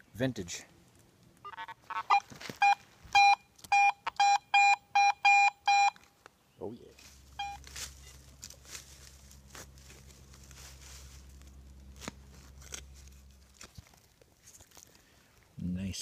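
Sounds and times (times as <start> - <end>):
low steady hum: 0.0 - 16.0
metal detector beep: 1.4 - 6.0, 7.3 - 8.3
hand digging in soil: 7.0 - 15.5.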